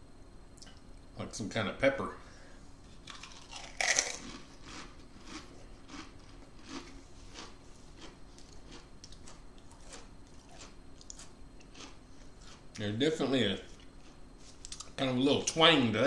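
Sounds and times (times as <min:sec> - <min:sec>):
chewing crisps crunch: 0:03.0 - 0:12.9, 0:13.7 - 0:15.0.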